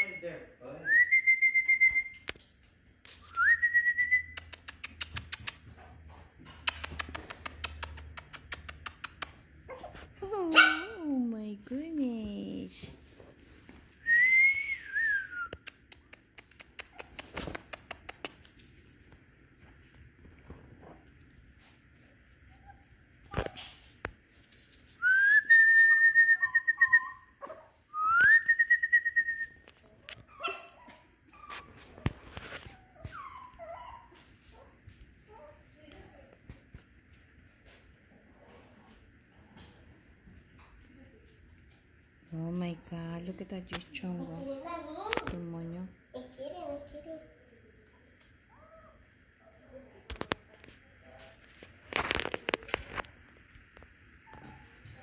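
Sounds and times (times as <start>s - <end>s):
claws clicking on tile floor: 2.2s - 9.9s, 15.5s - 21.2s, 47.6s - 55.0s
person whistling: 14.0s - 15.5s
puppies whimpering: 32.7s - 34.3s.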